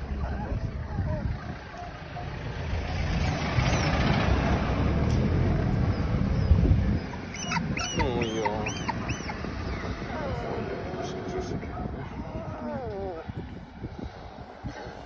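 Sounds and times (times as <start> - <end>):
puppy squealing: 7.1 - 10.7.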